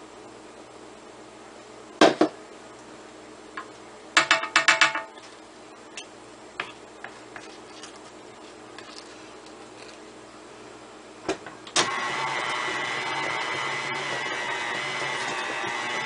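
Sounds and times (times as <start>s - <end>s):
utensils knocking on metal bowl: 4.2s - 5.2s.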